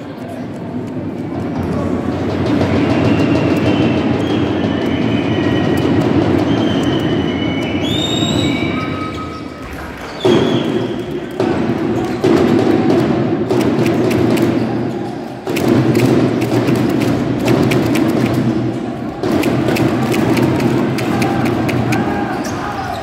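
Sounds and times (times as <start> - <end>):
loud arena crowd: 0.0 - 23.0
sneakers squeaking: 6.5 - 12.5, 13.9 - 15.8, 20.2 - 23.0.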